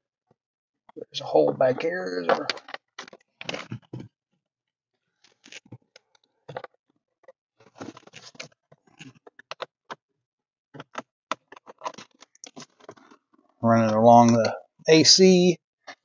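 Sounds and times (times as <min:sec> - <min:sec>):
wire scratching behind plastic trim: 0:10.8 - 0:13.2.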